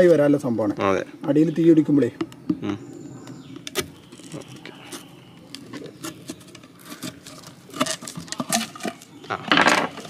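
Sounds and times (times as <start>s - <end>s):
paper crinkling: 3.7s - 10.0s.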